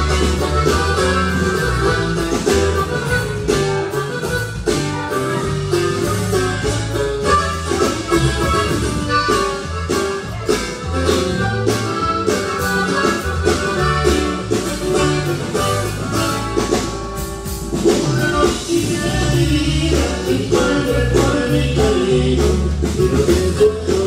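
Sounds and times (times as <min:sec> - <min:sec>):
accordion: 0:00.0 - 0:24.0
bass line: 0:00.0 - 0:24.0
drum beat: 0:00.0 - 0:24.0
guitar playing: 0:00.0 - 0:24.0
person singing: 0:18.1 - 0:24.0.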